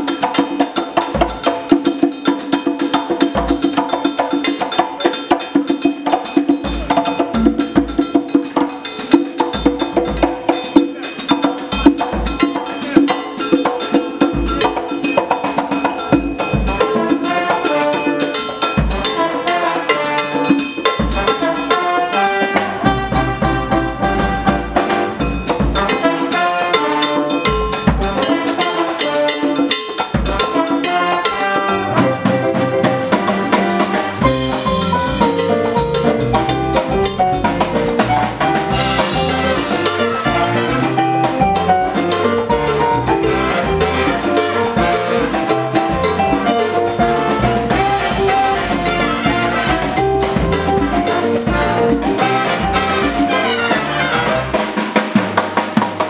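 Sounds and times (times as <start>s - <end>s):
big band playing latin music: 0.0s - 56.0s
drum kit sharp loud hits: 31.8s - 56.0s.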